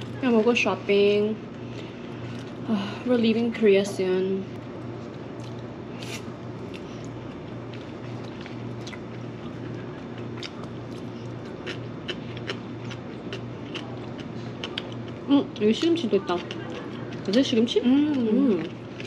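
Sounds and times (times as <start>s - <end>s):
steady low hum: 0.0s - 19.0s
chewing: 6.7s - 19.0s.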